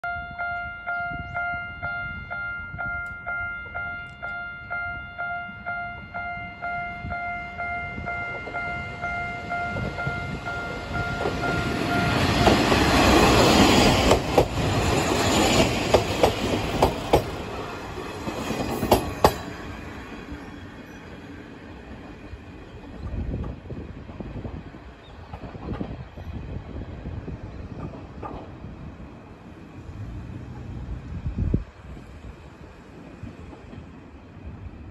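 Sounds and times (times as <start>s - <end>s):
level-crossing warning bell: 0.0s - 13.9s
diesel railcar engine: 0.1s - 34.9s
train wheels clacking over rail joints: 10.6s - 20.4s, 27.8s - 28.6s.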